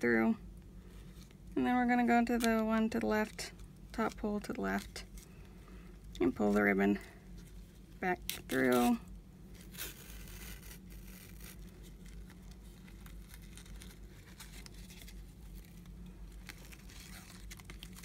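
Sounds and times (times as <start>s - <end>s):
paper and ribbon rustling: 9.6s - 18.0s.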